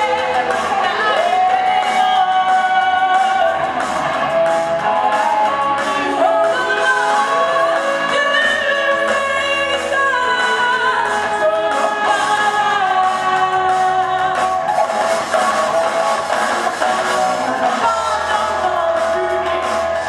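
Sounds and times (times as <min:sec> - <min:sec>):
electric guitar playing: 0:00.0 - 0:20.0.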